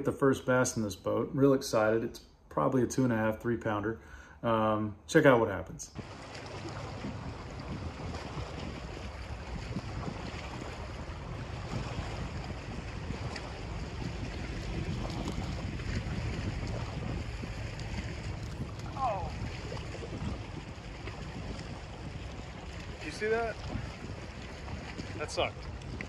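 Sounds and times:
water lapping against boat hull: 0:05.9 - 0:26.0
wind on microphone: 0:06.0 - 0:26.0.

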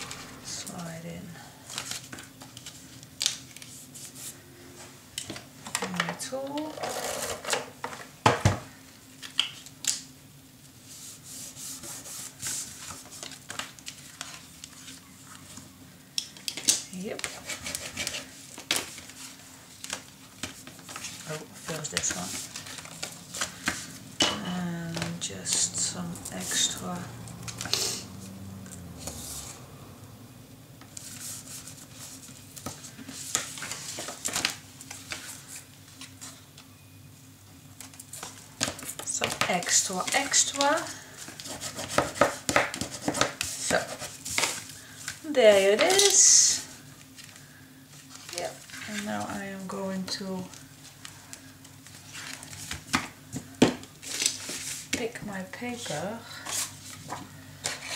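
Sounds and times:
paper scraping and rustling: 0:06.7 - 0:07.6, 0:10.8 - 0:15.6, 0:17.0 - 0:24.1, 0:24.9 - 0:28.0, 0:30.9 - 0:36.4, 0:38.0 - 0:45.2, 0:51.8 - 0:53.0, 0:54.0 - 0:55.0, 0:55.8 - 0:57.9
hand rubbing paper on tabletop: 0:10.8 - 0:13.1, 0:31.0 - 0:32.3.

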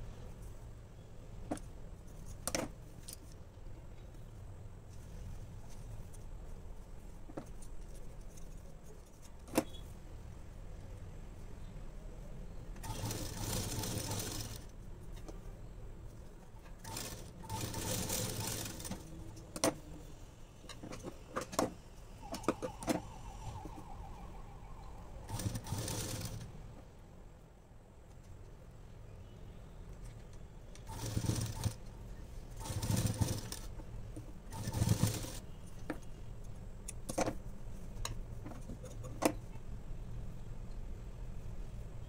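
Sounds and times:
sewing machine stitching: 0:12.8 - 0:14.7, 0:16.8 - 0:19.1, 0:25.3 - 0:26.5, 0:30.9 - 0:31.9, 0:32.6 - 0:33.7, 0:34.5 - 0:35.4.

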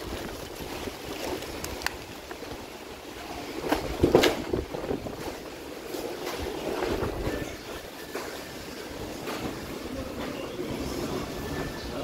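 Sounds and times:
wind buffeting microphone: 0:03.5 - 0:05.7, 0:06.3 - 0:07.8.

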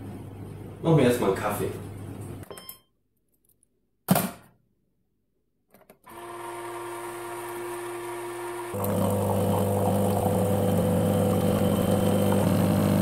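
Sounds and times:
coffee machine motor humming: 0:06.1 - 0:13.0.

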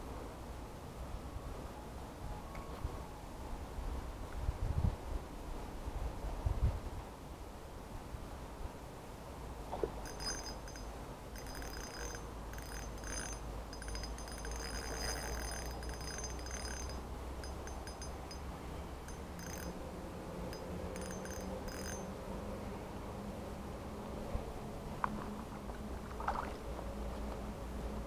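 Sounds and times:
spinning reel whirring: 0:10.0 - 0:18.4, 0:19.1 - 0:19.8, 0:20.5 - 0:22.0
high metallic ringing: 0:10.0 - 0:22.2.

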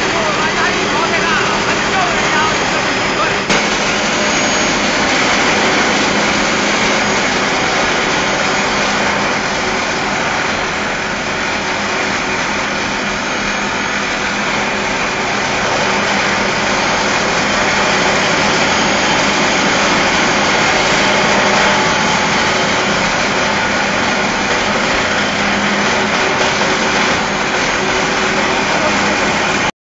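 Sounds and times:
grinding wheel on steel: 0:00.0 - 0:29.7
low machine hum: 0:00.0 - 0:29.7.

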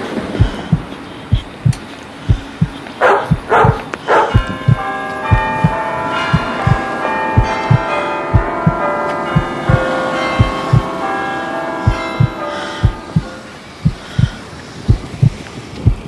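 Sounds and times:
church bells ringing: 0:00.0 - 0:02.1, 0:02.8 - 0:14.8
heartbeat thumping: 0:00.3 - 0:10.9, 0:11.8 - 0:16.0
dog barking: 0:03.0 - 0:04.5.

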